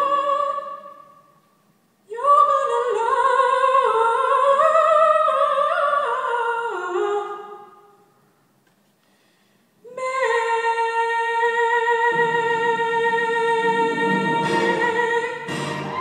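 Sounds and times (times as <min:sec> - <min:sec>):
instrumental accompaniment: 0:13.9 - 0:16.0.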